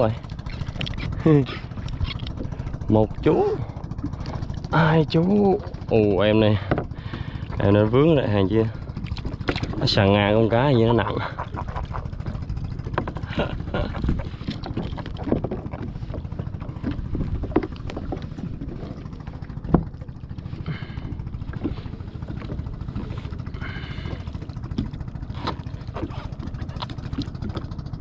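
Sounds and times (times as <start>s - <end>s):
water lapping against kayak hull: 0.0s - 28.0s
wind on microphone: 13.3s - 23.9s.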